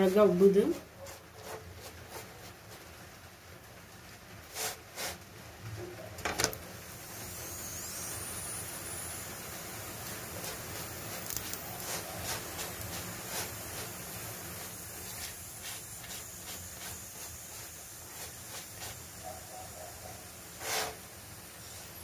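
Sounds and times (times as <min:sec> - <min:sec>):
flatbread sizzling on a hot griddle: 0:00.0 - 0:22.0
small crackles and pop: 0:11.2 - 0:11.7.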